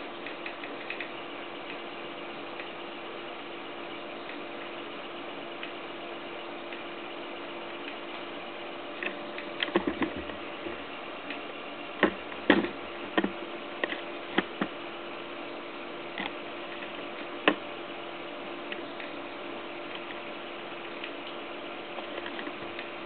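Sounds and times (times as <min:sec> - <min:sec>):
stepper motors humming and whining: 0:00.0 - 0:23.0
sharp clicks and knocks: 0:09.0 - 0:11.4, 0:12.0 - 0:14.8, 0:16.2 - 0:17.6.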